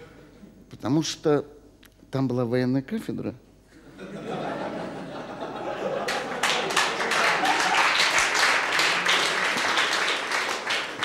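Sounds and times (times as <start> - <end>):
studio audience laughing: 3.9 - 9.6
audience applause: 5.8 - 11.0.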